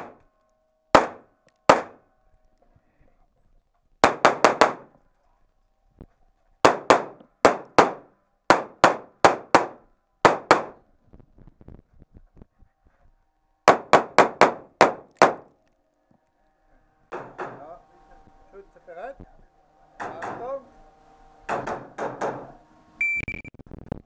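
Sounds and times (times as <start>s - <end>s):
rapid pistol shots echoing: 1.0s - 2.0s.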